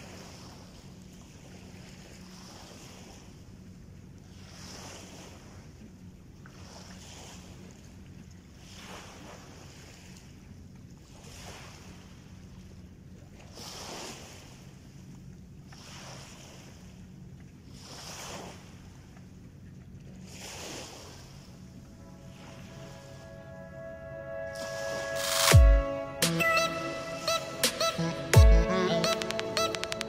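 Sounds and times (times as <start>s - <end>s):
small waves lapping on shore: 0.0s - 23.9s
music: 22.0s - 30.0s.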